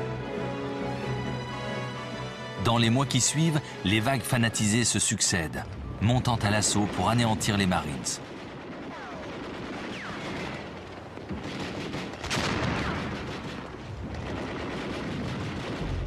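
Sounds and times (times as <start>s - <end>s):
rifle and machine-gun fire: 6.8s - 16.0s
loud blast: 11.4s - 16.0s.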